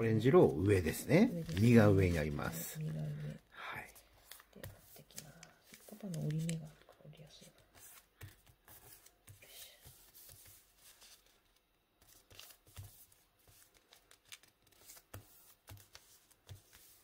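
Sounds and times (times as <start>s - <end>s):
paper rustling and crinkling: 0.8s - 17.0s.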